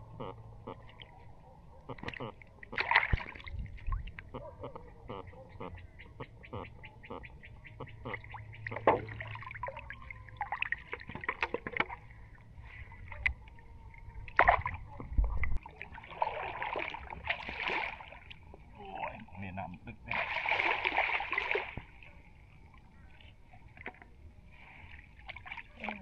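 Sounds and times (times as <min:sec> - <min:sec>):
water splash: 0:02.0 - 0:04.2, 0:14.3 - 0:18.4, 0:20.1 - 0:22.1
water dripping and trickling: 0:08.2 - 0:12.1
rush of water: 0:20.1 - 0:22.2.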